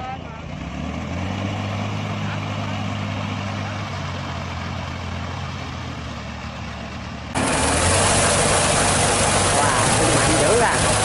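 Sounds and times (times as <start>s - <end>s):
tractor engine running: 0.0s - 11.0s
mud and water spraying: 7.4s - 11.0s.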